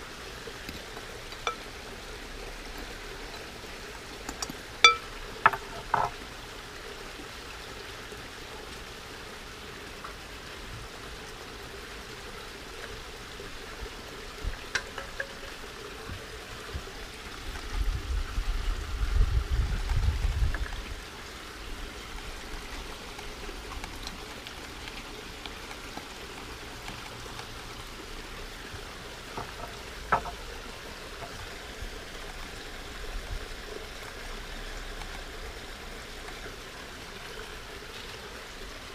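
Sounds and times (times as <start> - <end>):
trickle of running water: 0.0 - 38.9
stones clicking against glass bowl: 4.3 - 6.1.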